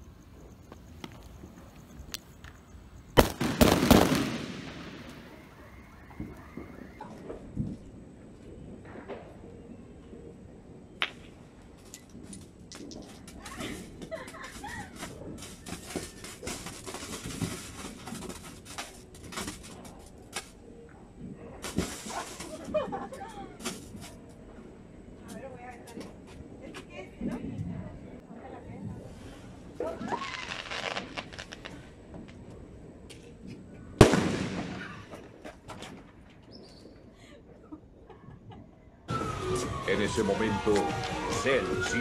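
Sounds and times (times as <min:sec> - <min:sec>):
distant fireworks popping: 0:00.0 - 0:42.0
firework hissing and crackling: 0:03.2 - 0:07.3, 0:11.8 - 0:20.6, 0:21.6 - 0:24.2, 0:29.0 - 0:32.4
firecracker bang: 0:03.2 - 0:07.8, 0:21.6 - 0:22.7, 0:34.0 - 0:36.1.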